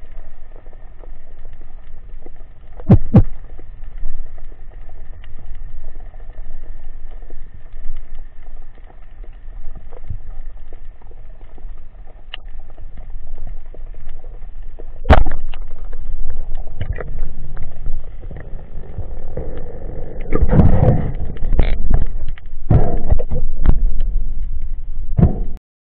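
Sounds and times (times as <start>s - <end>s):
underwater knocks: 2.8s - 3.3s, 20.3s - 24.1s, 25.2s - 25.6s.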